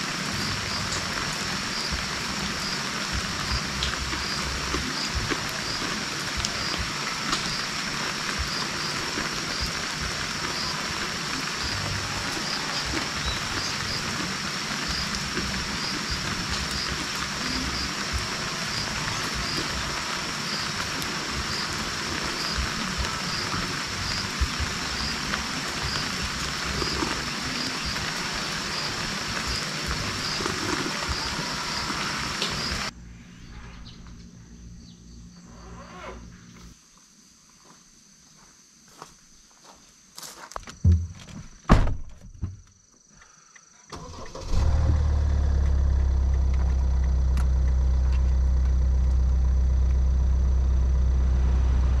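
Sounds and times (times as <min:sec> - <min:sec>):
light rain falling: 0:00.0 - 0:32.9, 0:43.9 - 0:52.0
insect trill: 0:00.0 - 0:52.0.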